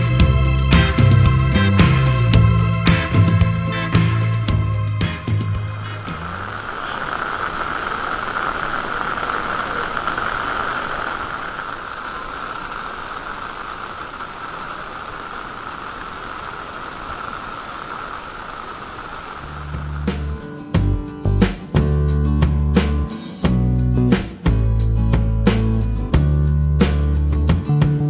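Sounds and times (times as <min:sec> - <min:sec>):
outdoor ambient hiss: 0:01.8 - 0:21.7.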